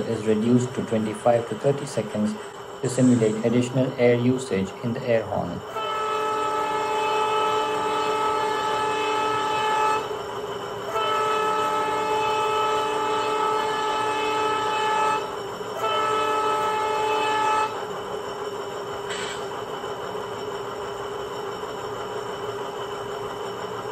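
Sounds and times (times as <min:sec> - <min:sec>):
model locomotive air horn: 0:05.6 - 0:10.2, 0:10.8 - 0:17.9.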